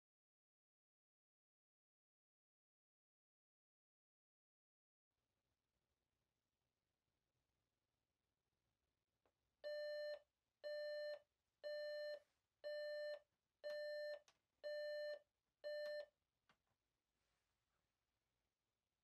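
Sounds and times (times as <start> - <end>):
alarm clock beeps: 9.6 - 16.1.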